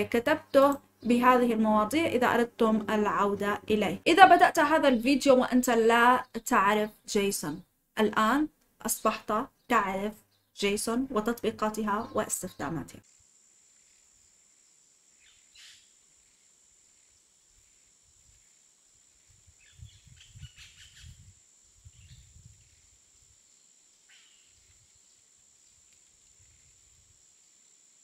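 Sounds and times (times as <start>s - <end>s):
bird chirps: 15.2s - 15.9s, 19.6s - 21.2s.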